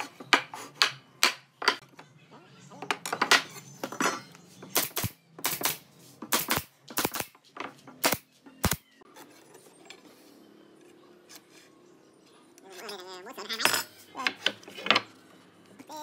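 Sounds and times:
nail gun firing: 4.8s - 7.3s.

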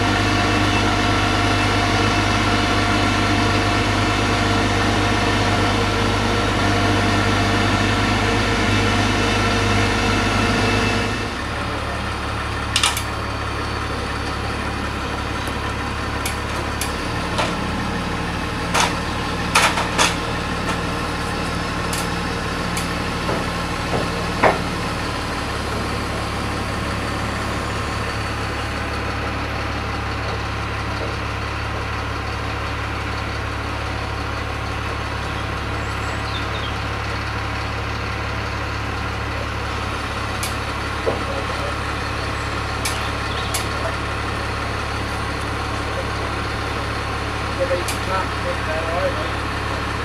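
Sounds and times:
engine idling: 0.0s - 50.0s.

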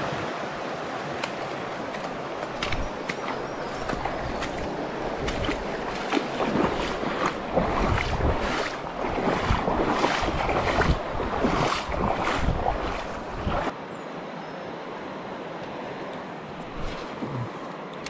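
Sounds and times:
river water splashing: 0.0s - 13.8s, 16.4s - 18.0s
steady rush of water: 0.0s - 13.8s, 15.2s - 18.0s
wind buffeting microphone: 2.2s - 13.7s.

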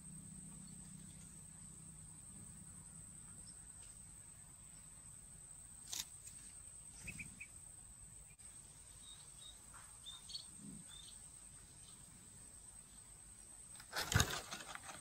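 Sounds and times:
faint high chirps: 6.9s - 7.6s, 8.2s - 12.2s.

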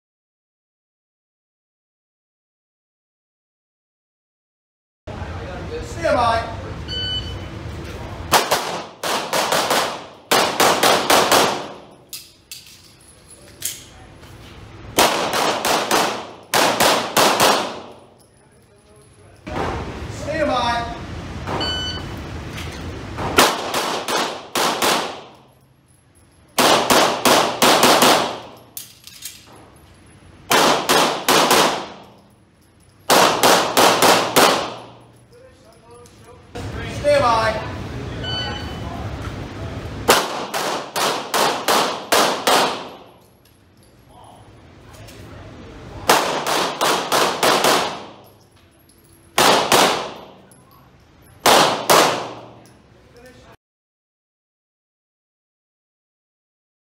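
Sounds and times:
handgun shots echoing indoors: 8.3s - 14.0s, 14.9s - 18.3s, 23.3s - 25.6s, 26.5s - 29.6s, 30.5s - 35.3s, 40.0s - 43.6s, 46.0s - 52.8s.

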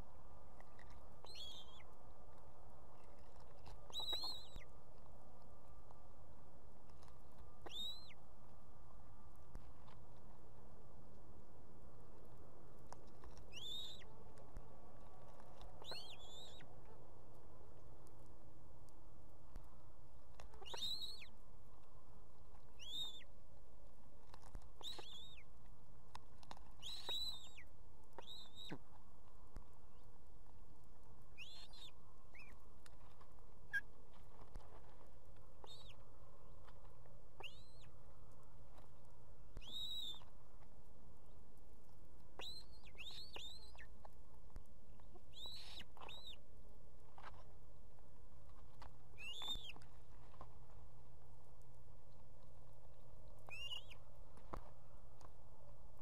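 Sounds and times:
steady low hum: 0.0s - 56.0s
ospreys whistling calls: 7.7s - 8.2s, 13.5s - 14.0s, 22.8s - 23.2s, 49.2s - 49.8s, 53.5s - 54.0s.

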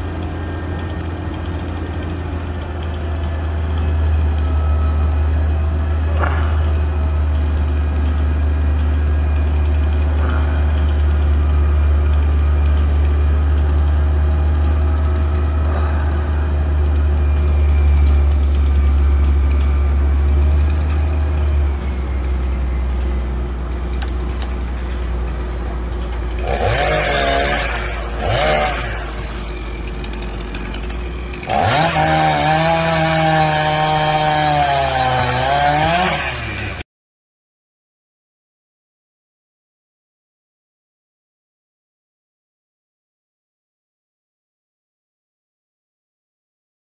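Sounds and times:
low engine hum: 0.0s - 34.4s
chainsaw revving: 0.0s - 36.8s.

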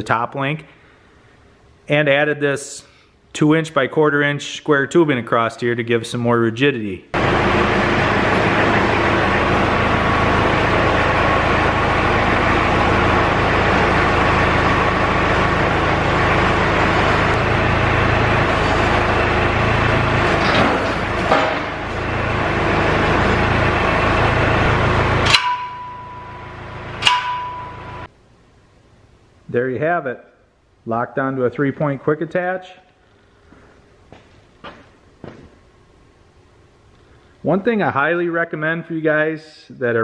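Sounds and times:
tractor engine running: 7.2s - 28.1s
metal clanks: 20.2s - 22.1s, 25.2s - 28.1s.

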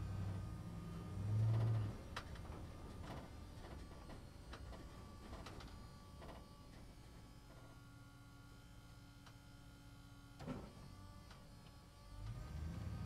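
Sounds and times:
low bus engine hum: 0.0s - 7.4s, 11.8s - 13.0s
bus interior clicks and rattles: 1.4s - 6.9s.

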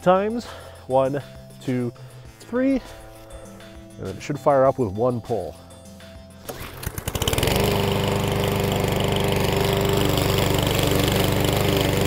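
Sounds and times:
lawn mower engine running: 6.4s - 12.0s.

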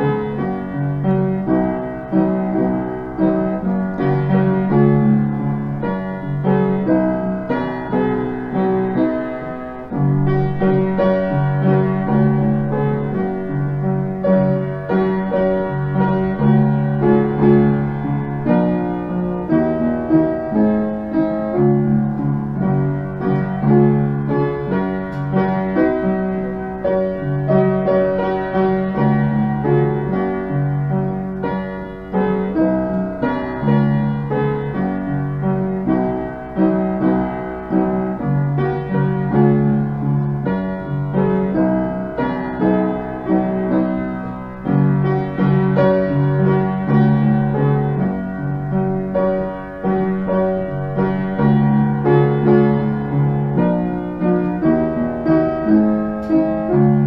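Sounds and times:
piano playing hymn chords: 0.0s - 57.0s.

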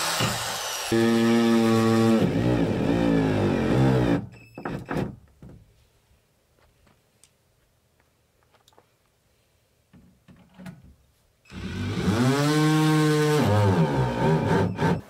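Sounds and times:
drill motor whining: 0.0s - 4.2s, 11.5s - 15.0s.

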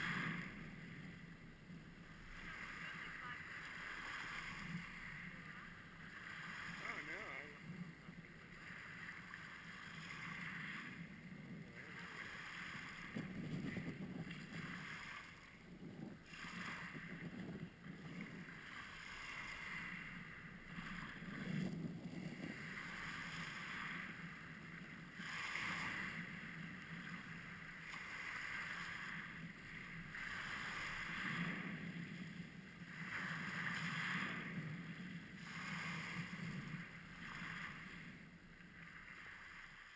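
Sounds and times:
waves washing over pebbles: 0.0s - 1.3s, 2.1s - 7.7s, 8.4s - 15.6s, 16.2s - 32.0s, 32.8s - 39.9s.

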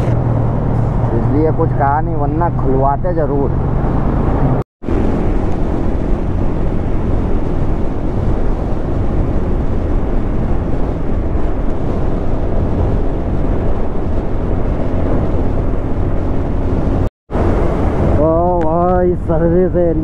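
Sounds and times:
road noise: 0.0s - 20.0s
wind rushing over microphone: 0.0s - 20.0s
motorcycle engine at speed: 3.3s - 19.1s.

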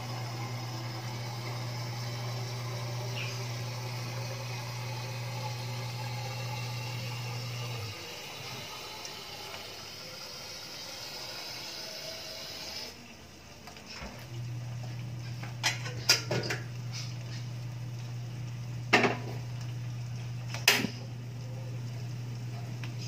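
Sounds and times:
steady hiss: 0.0s - 23.0s.

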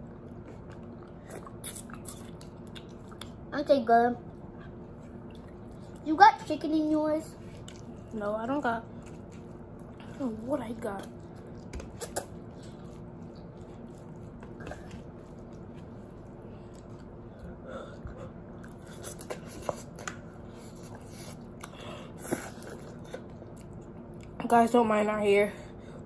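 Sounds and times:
chewing: 0.0s - 3.4s, 4.3s - 6.1s, 7.4s - 24.4s
steady low hum: 0.0s - 26.0s
person eating noodles: 11.2s - 23.9s.

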